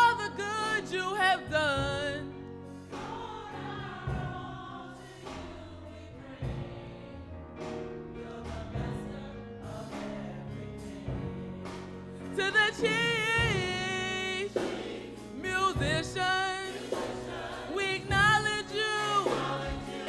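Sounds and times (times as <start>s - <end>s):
soloist singing: 0.0s - 2.3s, 12.2s - 20.0s
choir singing: 0.0s - 20.0s
slow gospel music: 0.0s - 20.0s.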